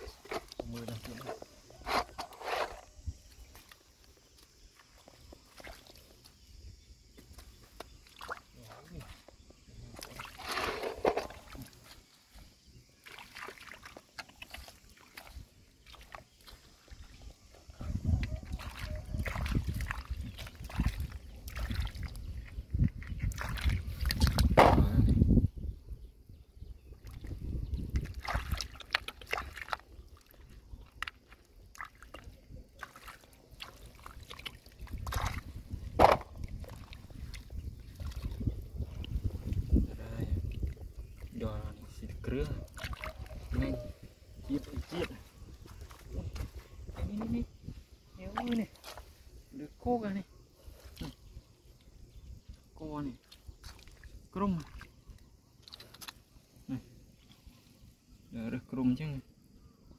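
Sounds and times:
hands splashing in shallow water: 0:04.8 - 0:06.2, 0:07.4 - 0:12.1, 0:13.0 - 0:17.0, 0:18.2 - 0:24.8, 0:27.0 - 0:39.7, 0:42.7 - 0:43.8, 0:53.2 - 0:56.3.

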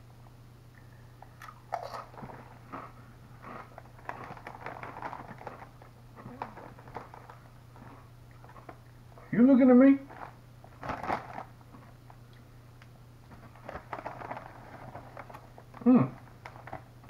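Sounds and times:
chip crunching when chewed: 0:00.8 - 0:08.9.

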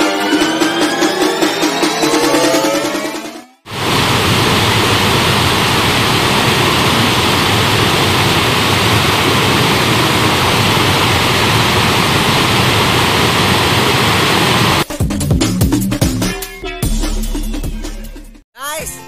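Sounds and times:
water rushing over weir: 0:03.7 - 0:14.8.

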